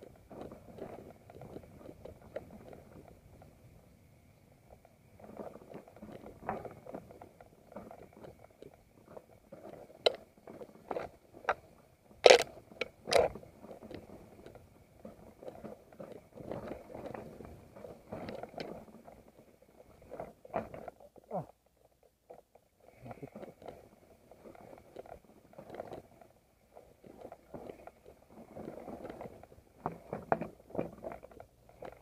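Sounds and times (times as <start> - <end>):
bike rattling: 23.2 - 32.0.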